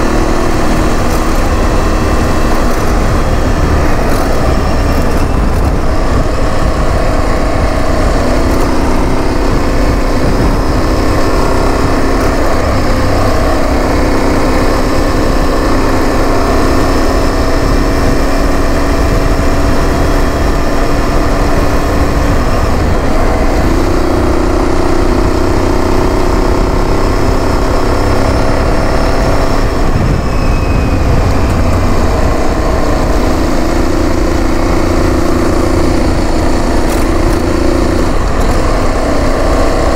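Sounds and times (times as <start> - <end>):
tyres rumbling on gravel: 0.0 - 14.2, 29.5 - 39.9
motorcycle engine at road speed: 0.0 - 39.9.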